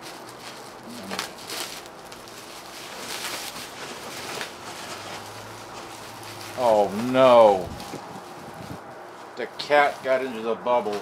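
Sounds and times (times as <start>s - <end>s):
bubble wrap crinkling: 0.0s - 11.0s.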